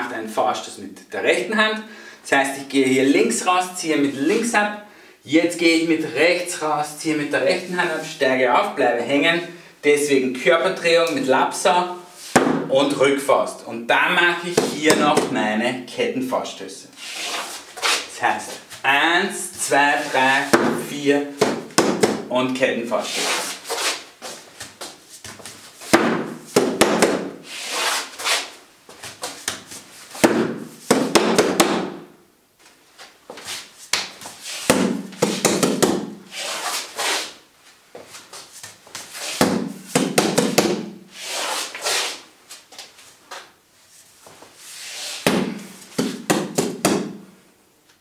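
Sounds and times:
punches thudding on padded dummy: 0:12.4 - 0:12.7, 0:21.4 - 0:22.3, 0:25.9 - 0:27.3, 0:30.2 - 0:32.0, 0:34.7 - 0:36.2, 0:45.3 - 0:47.2.

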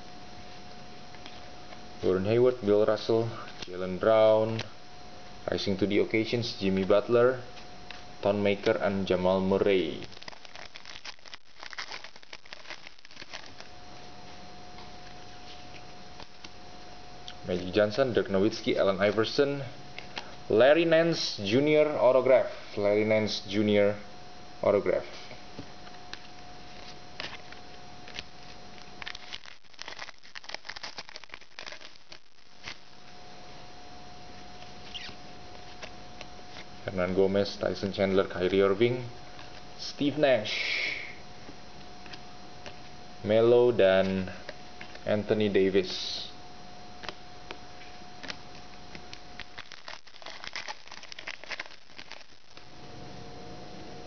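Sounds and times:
pack wrapper crinkling: 0:09.6 - 0:13.8, 0:26.1 - 0:33.0, 0:48.2 - 0:52.7
cards rustling and clicking: 0:09.8 - 0:13.7, 0:25.9 - 0:32.9, 0:47.8 - 0:52.7.

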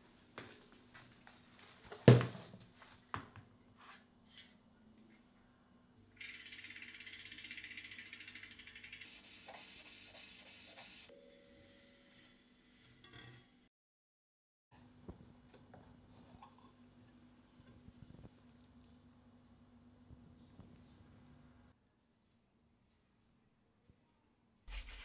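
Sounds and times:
bicycle freehub ticking: 0:06.2 - 0:09.1.

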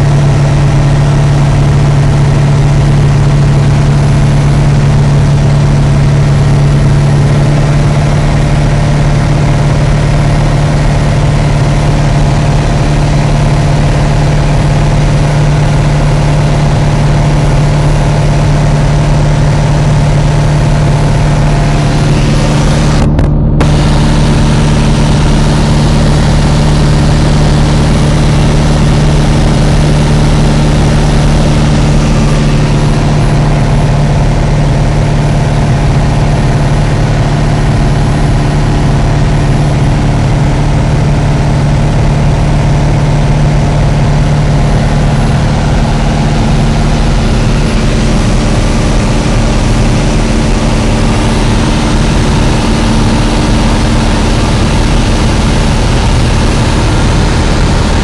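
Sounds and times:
light aircraft engine droning: 0:00.0 - 0:58.0.

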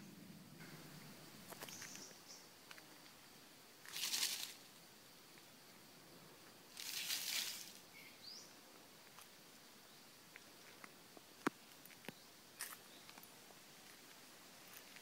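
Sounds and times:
faint forest background: 0:00.0 - 0:15.0
rising bird chirp: 0:00.6 - 0:02.6, 0:07.9 - 0:08.6
dry leaves rustling: 0:03.8 - 0:04.7, 0:06.7 - 0:08.0.

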